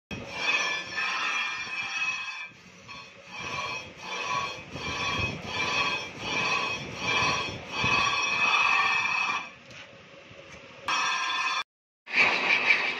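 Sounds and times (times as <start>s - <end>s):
metal screeching on a lathe: 0.1s - 9.6s, 10.9s - 11.6s.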